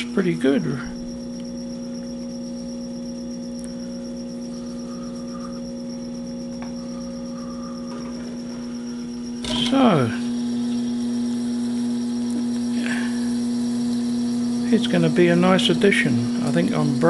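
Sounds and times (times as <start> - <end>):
lathe motor humming: 0.0 - 17.0
drill boring into metal: 9.1 - 17.0.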